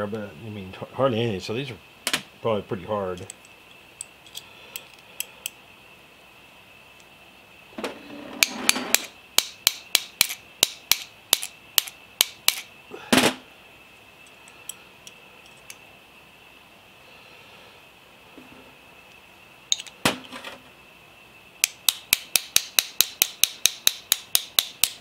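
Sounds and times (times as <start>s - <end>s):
small hammer tapping metal: 8.4s - 12.7s, 21.6s - 25.0s.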